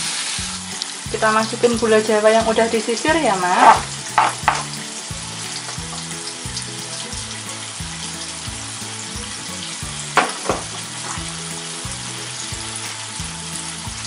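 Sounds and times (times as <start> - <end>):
paste sizzling in a frying pan: 0.0 - 14.0
soft background music: 0.0 - 14.0
sharp knocks: 3.7 - 4.8, 10.2 - 11.2.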